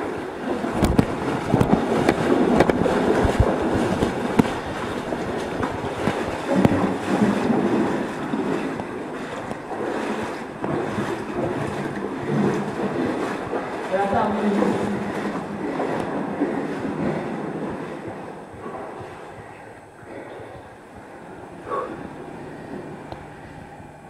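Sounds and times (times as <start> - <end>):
sloshing water: 0.0 - 24.0
footsteps: 0.8 - 19.3.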